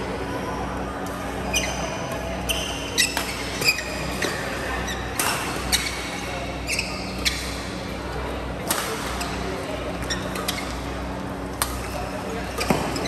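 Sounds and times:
low hall hum: 0.0s - 13.0s
shoes squeaking on court: 1.4s - 7.7s, 10.0s - 10.9s.

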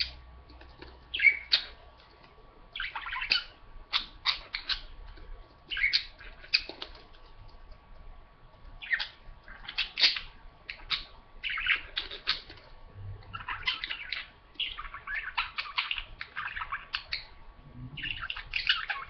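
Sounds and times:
budgerigars chattering and warbling: 1.1s - 1.8s, 2.8s - 5.0s, 5.7s - 7.0s, 8.8s - 12.6s, 13.2s - 19.0s.

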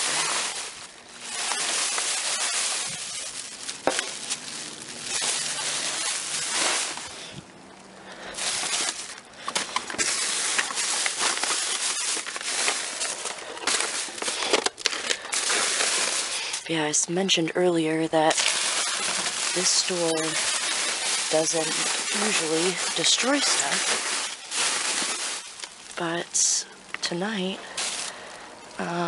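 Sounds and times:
plastic bag rustling: 0.0s - 29.0s.

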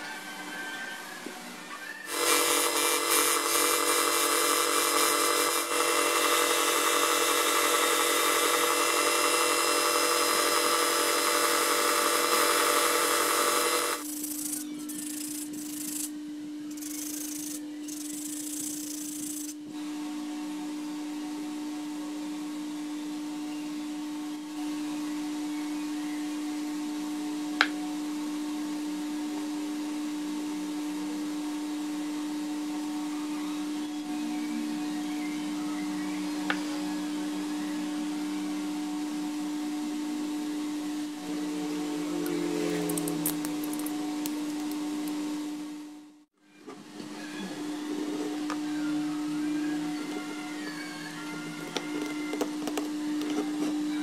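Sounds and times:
disc sander sanding wood: 2.1s - 14.1s
sander motor humming: 2.1s - 14.1s.

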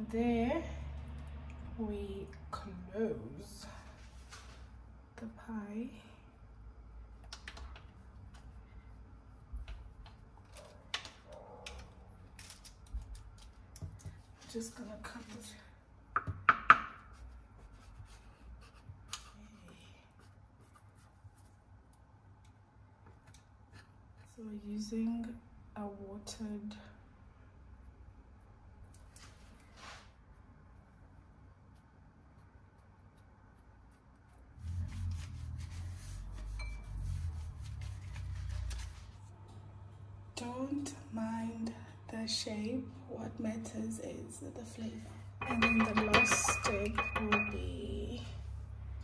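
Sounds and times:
rolling pin rolling pastry: 29.1s - 39.2s, 45.4s - 47.8s
knife knocking on baking tray: 45.4s - 47.6s.

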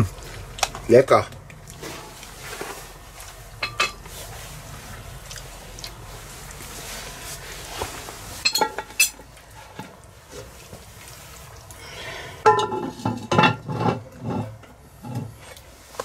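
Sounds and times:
coals scraping on metal lid: 1.8s - 4.3s, 12.4s - 15.6s
metal lid clanking on pot: 3.6s - 4.0s, 12.4s - 15.3s.

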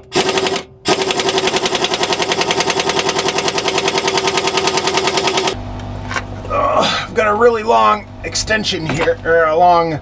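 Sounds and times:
pneumatic impact wrench hammering: 0.0s - 5.6s.

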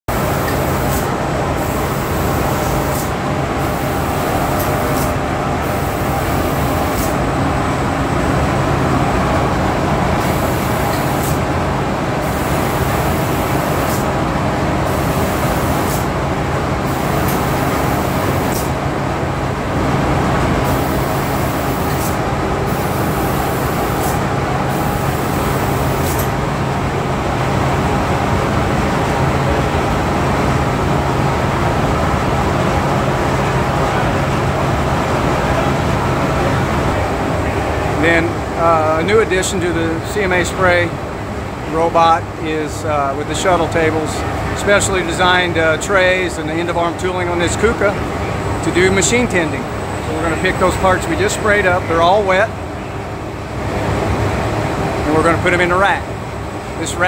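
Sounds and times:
robot spray gun hissing: 0.1s - 7.2s, 10.2s - 11.5s, 12.2s - 14.2s, 14.8s - 16.2s, 16.8s - 18.8s, 20.6s - 26.4s
spray booth machinery hum: 0.1s - 57.0s.

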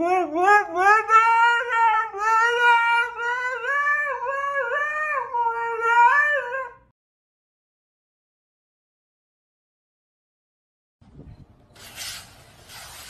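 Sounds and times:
dog howling: 0.0s - 6.9s.

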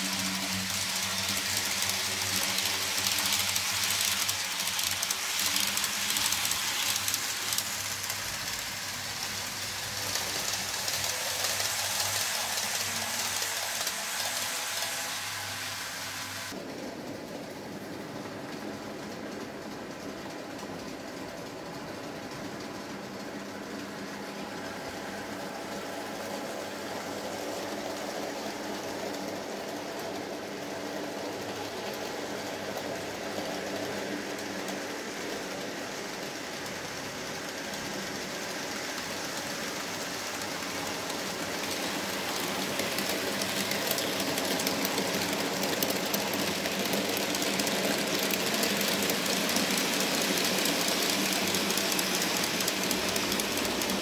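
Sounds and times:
small wheels rattling on rails: 0.0s - 15.8s, 16.4s - 54.0s
model train motor whir: 0.0s - 16.6s, 25.6s - 54.0s.

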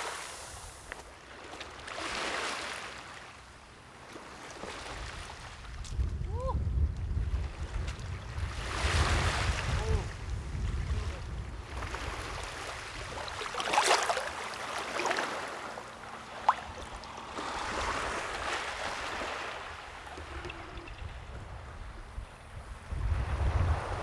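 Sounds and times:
waves lapping on pebbles: 0.0s - 3.2s, 11.6s - 21.0s
wind rumbling on microphone: 4.9s - 13.5s, 16.5s - 24.0s
water splashing around feet: 13.0s - 17.6s.

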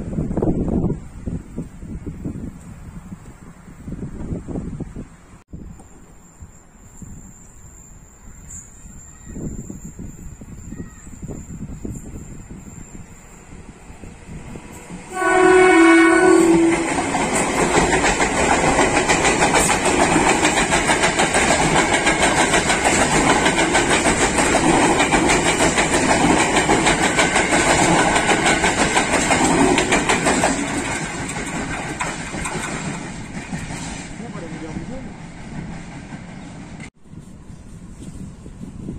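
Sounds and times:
train passing with rumble: 0.0s - 38.9s
train horn: 15.1s - 17.7s
wheels clattering over rail joints: 16.1s - 34.8s.

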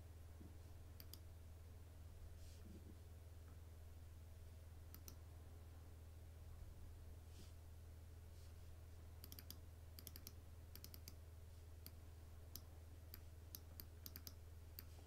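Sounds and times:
low steady hum: 0.0s - 15.0s
computer mouse clicking: 1.0s - 1.2s, 4.9s - 5.2s, 9.2s - 11.2s, 11.8s - 15.0s.

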